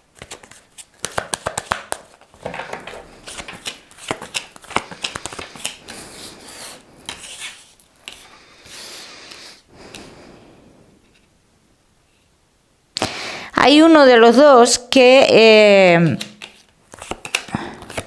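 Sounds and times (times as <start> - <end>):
cards being shuffled: 0.1 - 8.3, 16.0 - 18.0.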